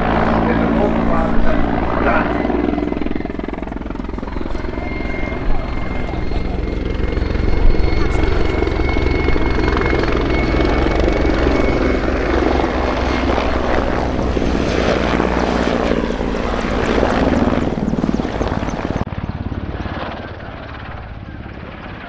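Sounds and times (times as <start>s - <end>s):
helicopter flying overhead: 0.0s - 22.0s.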